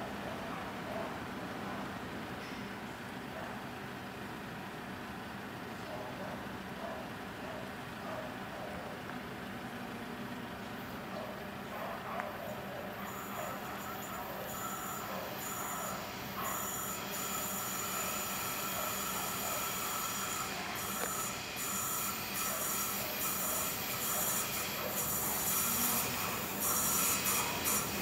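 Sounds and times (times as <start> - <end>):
train running on rails: 11.8 - 28.0
high wavering wheel squeal: 13.1 - 28.0.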